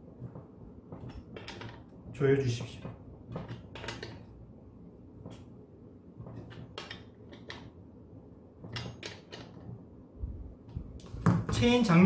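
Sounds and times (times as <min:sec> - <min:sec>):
wrench clicking and scraping: 0:03.4 - 0:04.2, 0:06.3 - 0:07.7.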